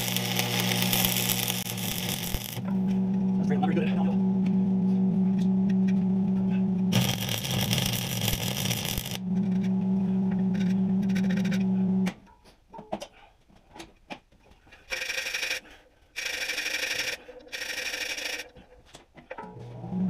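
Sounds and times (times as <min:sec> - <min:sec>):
welding arc buzzing: 0:00.0 - 0:02.9, 0:06.9 - 0:09.5.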